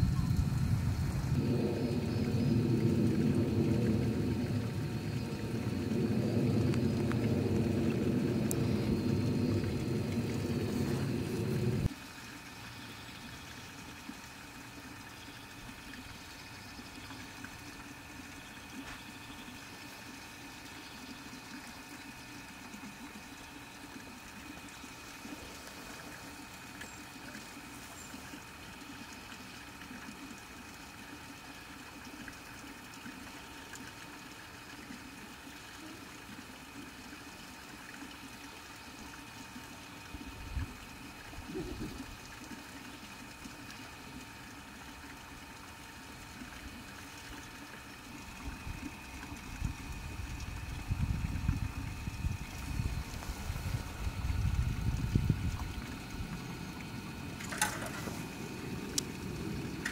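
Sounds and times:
faint high whine: 0.0 - 11.9, 51.0 - 59.9
low rumbling: 0.0 - 11.9
machinery hum: 0.0 - 11.9, 50.9 - 59.9.

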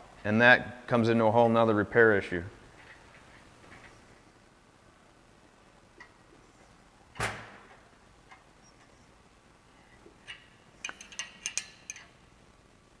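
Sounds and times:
small metallic clicks and ticks: 10.2 - 12.2.

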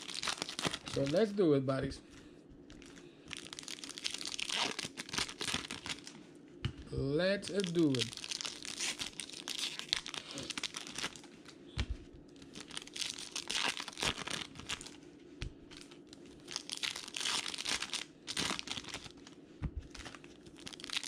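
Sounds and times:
foil wrappers crinkling: 0.0 - 1.4, 2.7 - 6.2, 7.4 - 11.6, 12.4 - 15.0, 15.7 - 21.0.

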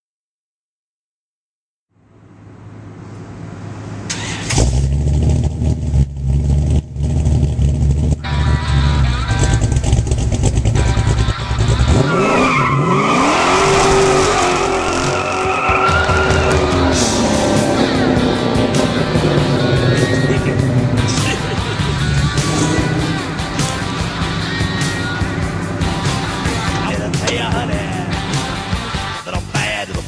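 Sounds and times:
car engine idling and revving: 1.9 - 30.0
tyres squealing: 11.9 - 29.2.

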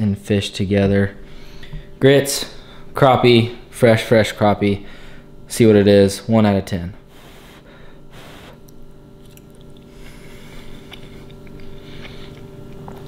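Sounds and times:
faint steady hum: 0.0 - 13.0
person chewing food: 8.4 - 13.0
wet mouth clicks: 8.6 - 9.9.

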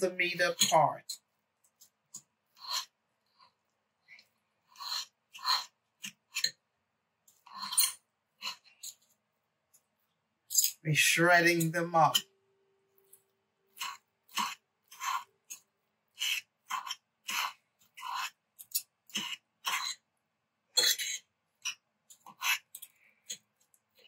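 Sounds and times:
forks scraping and tearing meat: 0.4 - 3.6, 4.6 - 6.6, 7.3 - 9.1, 13.1 - 20.0, 20.8 - 24.0.

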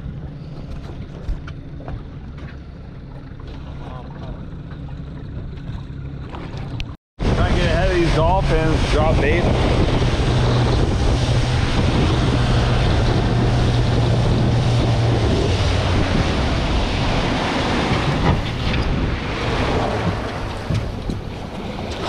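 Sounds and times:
outboard motor humming: 0.0 - 22.0
water rushing along hull: 0.0 - 22.0
wind on microphone: 6.6 - 22.0.

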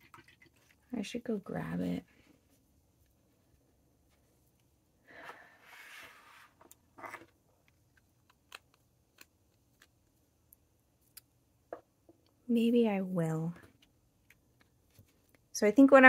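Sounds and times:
short scrape: 5.2 - 7.2.

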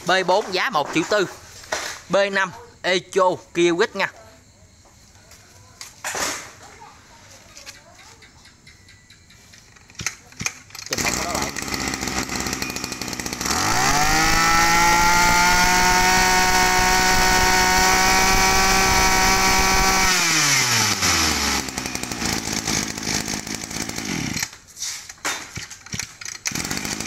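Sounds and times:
brush cutter engine revving: 10.4 - 24.6, 25.6 - 27.0.

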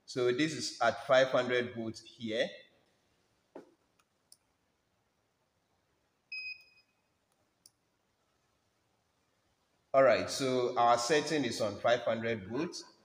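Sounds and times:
short electronic beep: 6.3 - 7.0.

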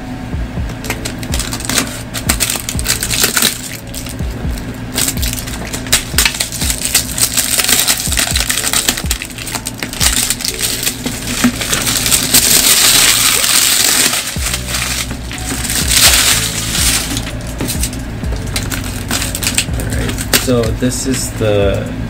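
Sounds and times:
plastic wrap crinkling: 0.8 - 20.7.

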